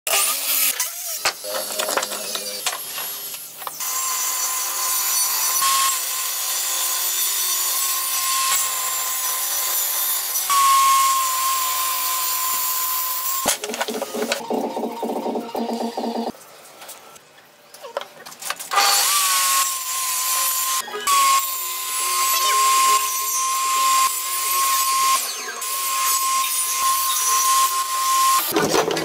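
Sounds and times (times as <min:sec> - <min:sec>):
table saw whine: 0:02.0 - 0:16.3, 0:18.8 - 0:29.0
miter saw cutting wood: 0:18.7 - 0:29.0.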